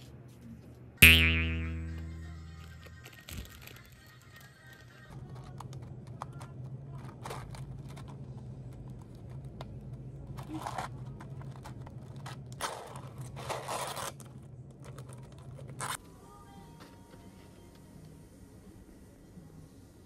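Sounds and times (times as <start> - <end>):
low hum: 1.0 - 3.0.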